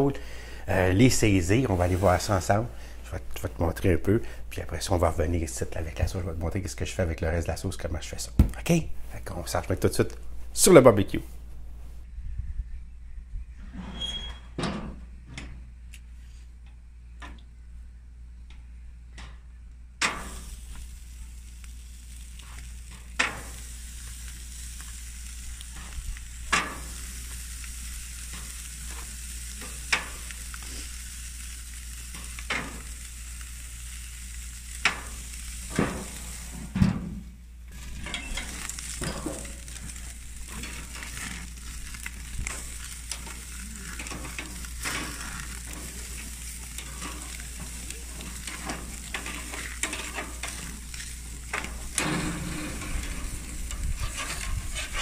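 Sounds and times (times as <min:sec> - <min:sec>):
pork chops sizzling on a grill: 0:00.0 - 0:07.0, 0:20.0 - 0:36.8, 0:37.5 - 0:55.0
dense crackling: 0:20.2 - 0:36.5, 0:37.5 - 0:55.0.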